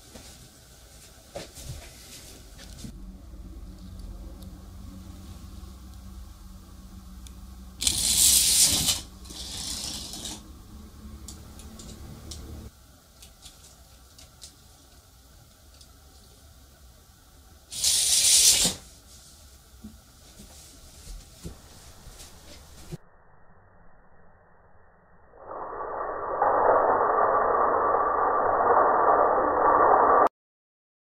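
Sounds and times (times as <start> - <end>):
toy car hissing whir: 7.8 - 10.4, 17.7 - 18.8.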